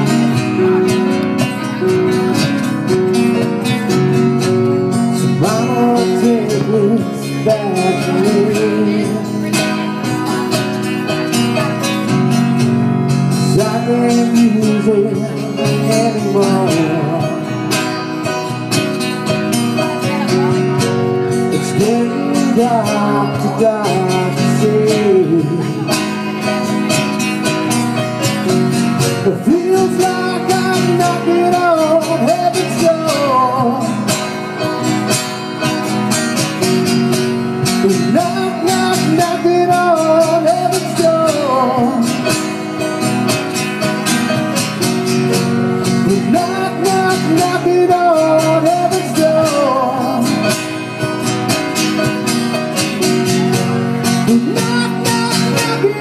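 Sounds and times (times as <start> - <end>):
person singing: 0.0 - 12.2, 13.2 - 18.7, 19.7 - 27.0, 28.9 - 34.8, 37.4 - 42.7, 45.9 - 50.9, 53.3 - 56.0
strummed acoustic guitar: 0.0 - 56.0.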